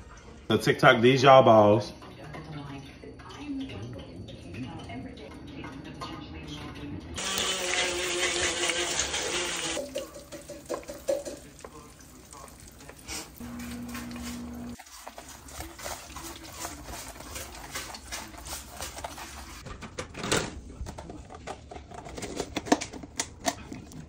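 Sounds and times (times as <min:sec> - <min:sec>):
crunchy clicks and rustles: 0:19.6 - 0:24.0.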